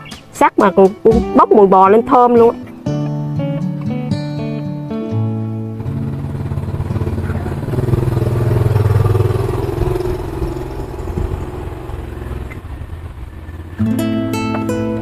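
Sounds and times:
vehicle engine passing: 0:05.2 - 0:15.0.

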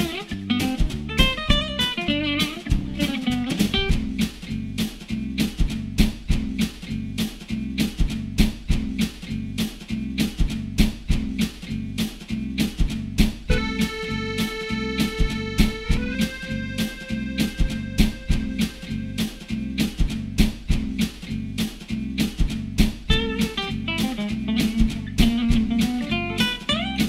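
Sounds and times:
guitar over steady beat: 0:00.0 - 0:27.0
held keyboard chord: 0:13.5 - 0:19.2.

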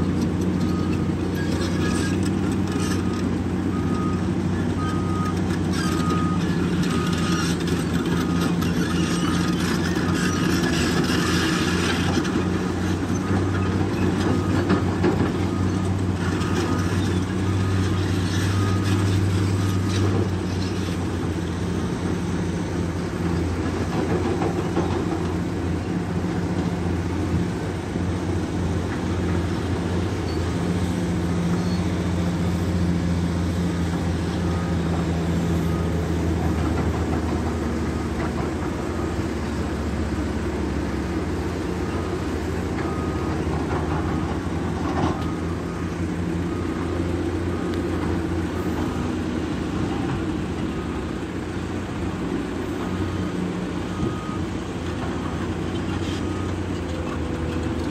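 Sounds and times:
diesel excavator engine running: 0:00.0 - 0:57.9.

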